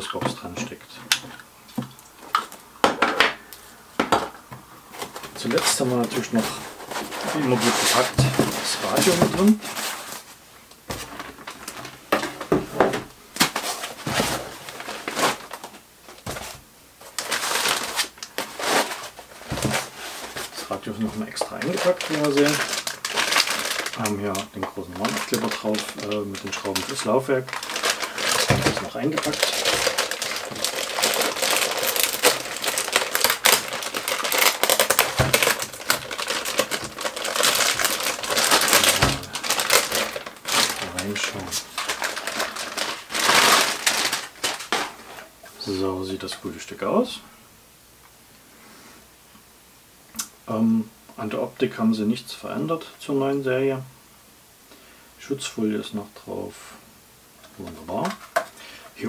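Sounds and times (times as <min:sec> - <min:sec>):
plastic bag crinkling: 0:04.9 - 0:46.3, 0:57.4 - 0:59.0.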